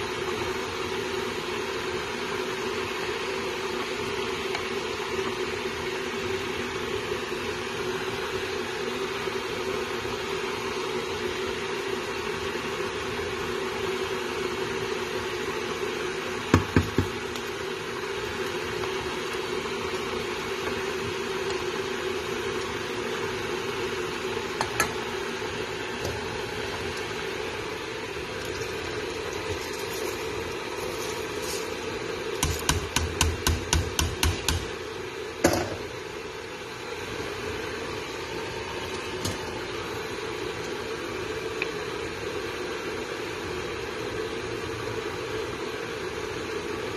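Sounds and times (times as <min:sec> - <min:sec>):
steady hiss: 0:12.8 - 0:43.1
wooden spoon stirring in a pot: 0:16.6 - 0:33.3
bowl knocking against pot: 0:35.4 - 0:35.8.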